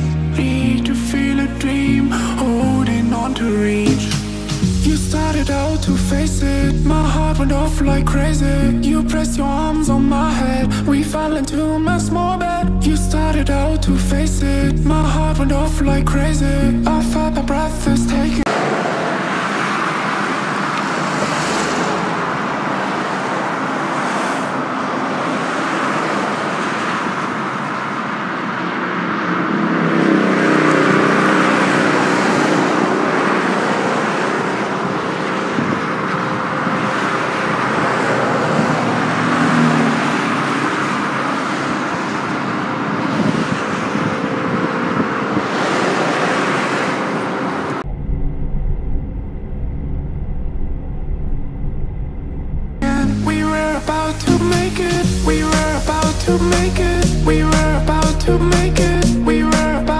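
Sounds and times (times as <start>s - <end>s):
highway traffic hiss: 3.8s - 6.6s, 18.5s - 29.4s, 30.5s - 47.8s, 53.3s - 59.9s.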